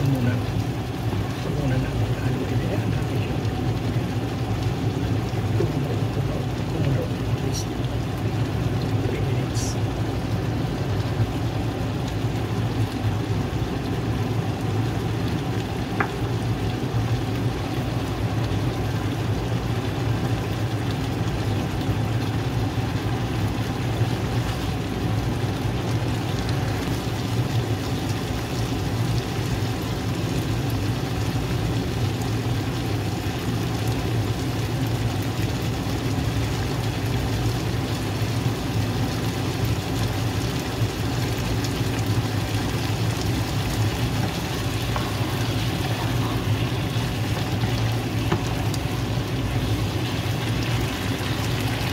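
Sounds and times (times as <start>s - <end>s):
continuous low hum: 0.0s - 51.9s
food sizzling and bubbling in pan: 0.0s - 51.9s.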